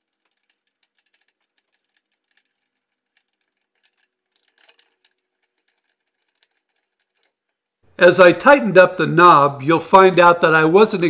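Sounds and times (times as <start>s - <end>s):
metal parts clicking: 0.0s - 7.8s.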